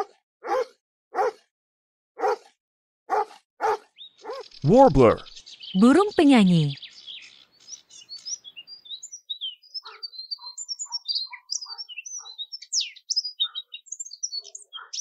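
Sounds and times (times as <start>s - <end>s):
songbird singing: 3.9s - 15.0s.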